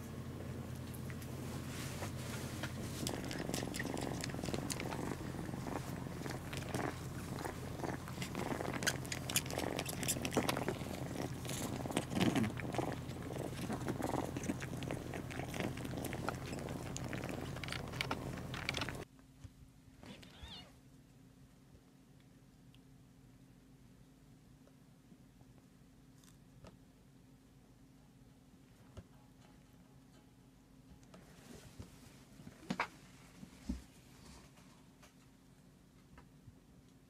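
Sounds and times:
cats purring: 0:00.0 - 0:19.1
small clicks of suckling and licking: 0:02.6 - 0:19.0.

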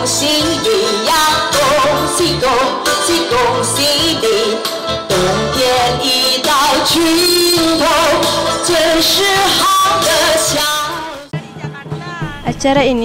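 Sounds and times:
backing track with bass line: 0:00.0 - 0:13.0
woman singing pop song: 0:00.0 - 0:13.0.

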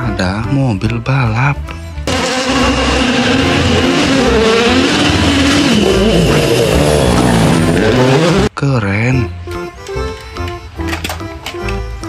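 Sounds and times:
rally car engine revving: 0:02.0 - 0:08.6.

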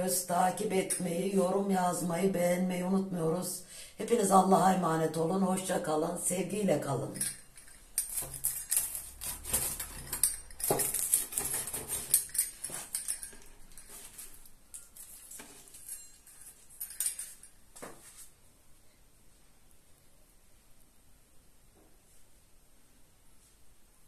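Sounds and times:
pizza cutter crackling through pastry: 0:08.1 - 0:12.3.

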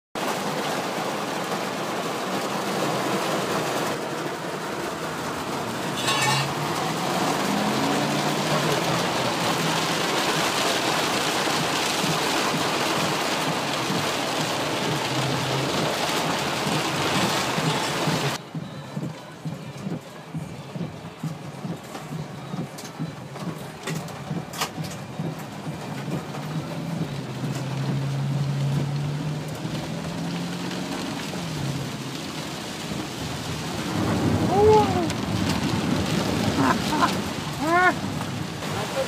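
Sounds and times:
heavy rain on car roof: 0:00.2 - 0:39.0.

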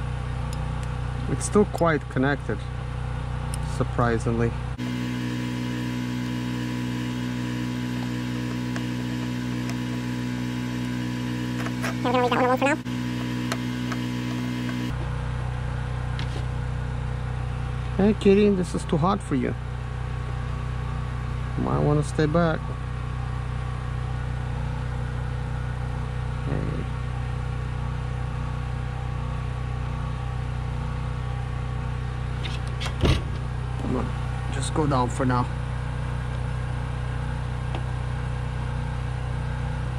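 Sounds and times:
steady machine hum: 0:00.0 - 0:39.9
soldering tool electrical hum: 0:04.8 - 0:15.0.

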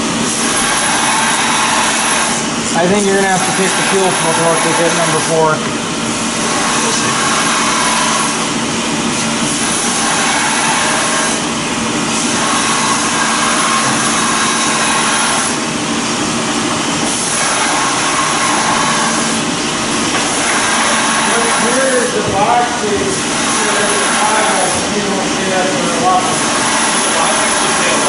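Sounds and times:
fan rushing: 0:00.0 - 0:28.0.

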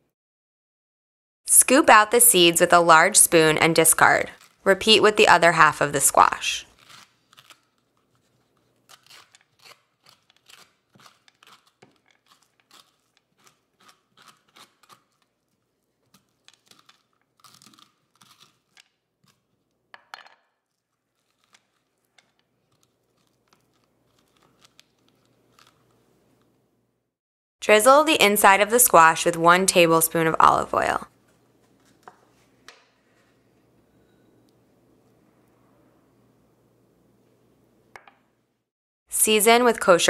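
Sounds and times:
spoon scraping squash: 0:03.3 - 0:19.7, 0:20.6 - 0:26.5.

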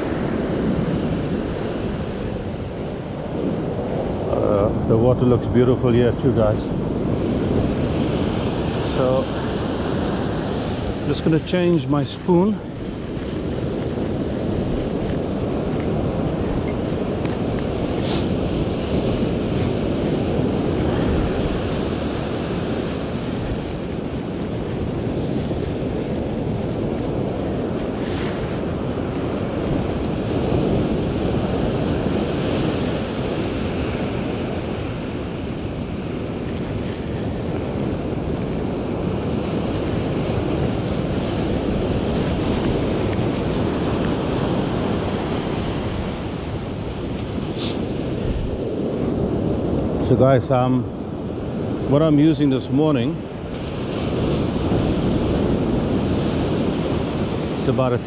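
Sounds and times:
ocean surf breaking on beach: 0:00.0 - 0:58.0
wind buffeting microphone: 0:00.0 - 0:58.0.

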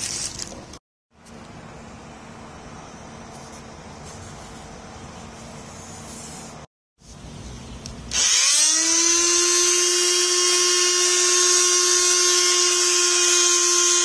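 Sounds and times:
electric sander whining: 0:08.1 - 0:14.0.

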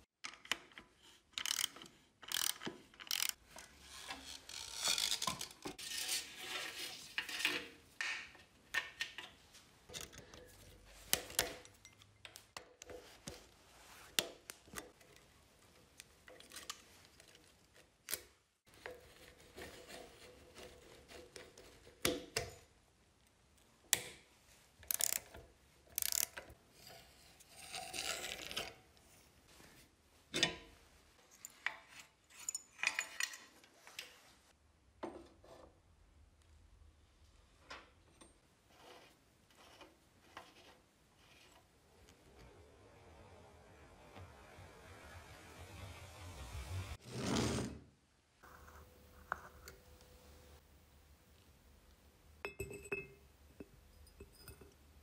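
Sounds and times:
metal parts scraping and rubbing: 0:01.4 - 0:08.4, 0:38.7 - 0:42.2
metallic clicks and clinks: 0:09.9 - 0:12.6.

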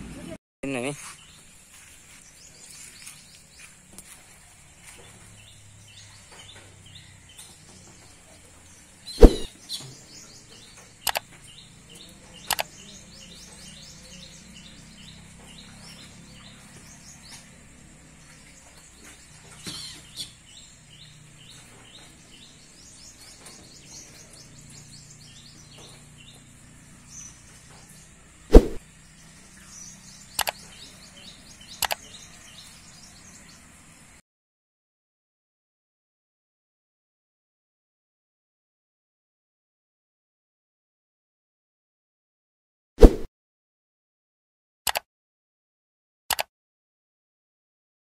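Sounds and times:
small birds chirping: 0:00.2 - 0:34.2.

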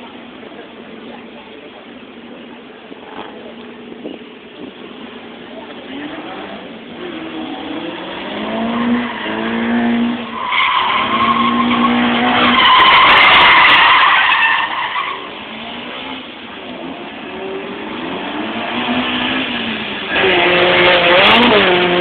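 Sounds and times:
car engine revving: 0:04.8 - 0:22.0
tyres squealing: 0:08.7 - 0:15.6.

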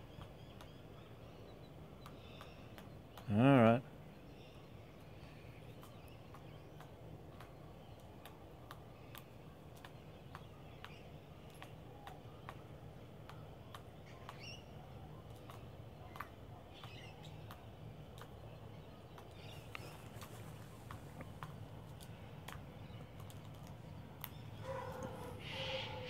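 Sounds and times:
bird claws clicking on tiles: 0:19.2 - 0:25.2.

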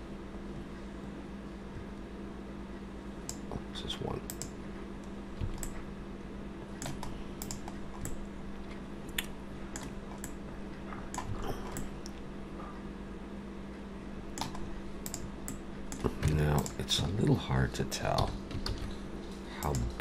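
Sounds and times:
steady low hum: 0:00.0 - 0:20.0
keyboard and mouse clicking: 0:04.3 - 0:05.8, 0:06.8 - 0:08.2, 0:09.1 - 0:10.4, 0:11.1 - 0:12.2, 0:14.4 - 0:16.8, 0:19.6 - 0:20.0.

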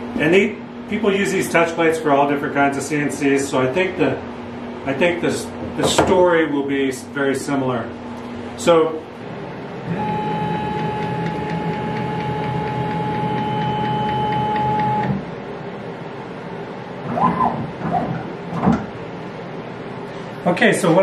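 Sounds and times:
low background hum: 0:00.0 - 0:21.0
stepper motors whining: 0:09.9 - 0:15.2.

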